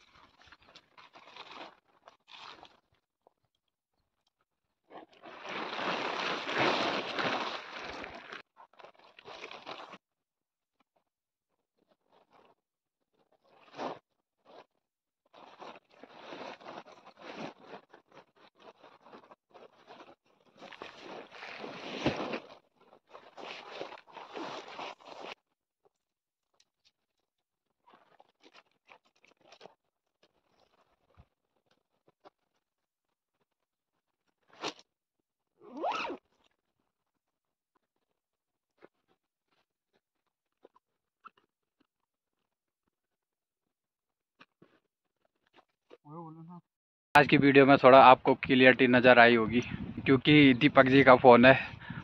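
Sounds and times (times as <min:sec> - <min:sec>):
nylon tent fabric rustling: 0:00.9 - 0:02.7, 0:05.2 - 0:10.0, 0:13.2 - 0:25.5.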